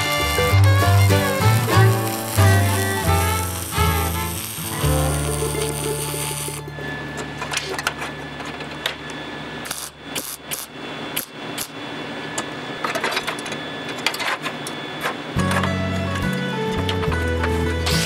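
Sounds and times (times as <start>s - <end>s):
welder crackling: 0.0s - 6.7s, 9.6s - 11.8s.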